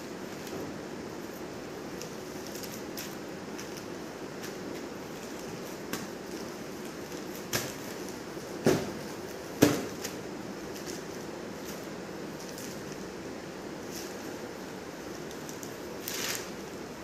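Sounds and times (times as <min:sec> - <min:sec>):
room hiss: 0:00.0 - 0:17.0
cloth thumps on tiled floor: 0:08.6 - 0:09.0.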